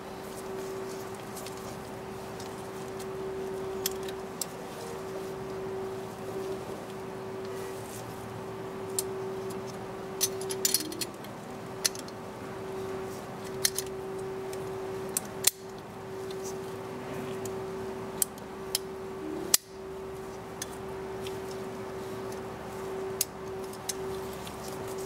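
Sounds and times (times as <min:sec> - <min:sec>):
steady hum: 0:00.0 - 0:25.0
metal clicks and clinks: 0:08.9 - 0:12.2.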